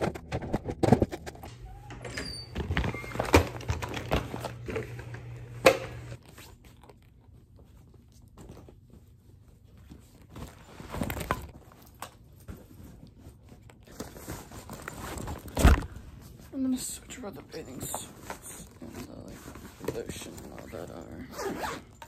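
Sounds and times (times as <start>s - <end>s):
clicks and knocks of packing: 0.0s - 5.2s
items and fabric rustling: 0.0s - 22.0s.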